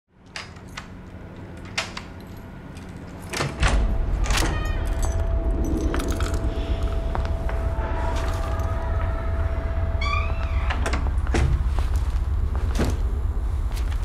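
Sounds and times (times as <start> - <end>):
keys clicking in door lock: 0.2 - 6.5
deep low rumble: 3.6 - 14.0.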